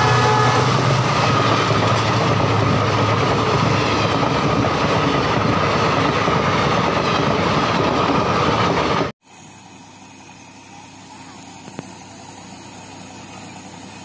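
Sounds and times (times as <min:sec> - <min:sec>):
train coaches rumbling past: 0:00.0 - 0:09.1.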